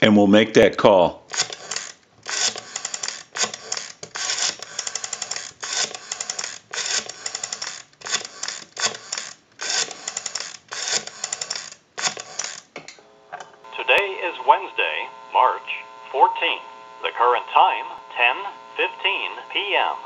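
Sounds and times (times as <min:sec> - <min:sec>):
rotary phone dial clicking: 0:01.3 - 0:12.7.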